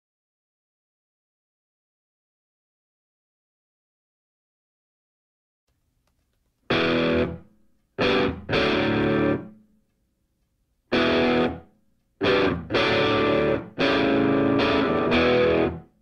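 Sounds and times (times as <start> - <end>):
distorted electric guitar chords: 6.7 - 9.5, 10.9 - 16.0.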